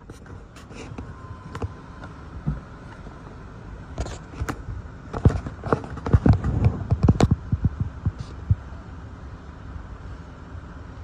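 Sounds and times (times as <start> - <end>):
wind gusts buffeting microphone: 0.0 - 11.0.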